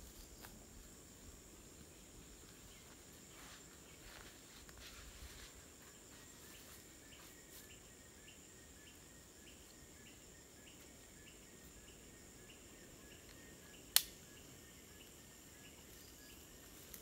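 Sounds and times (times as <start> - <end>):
high insect drone: 0.0 - 17.0
sharp click: 13.9 - 14.2.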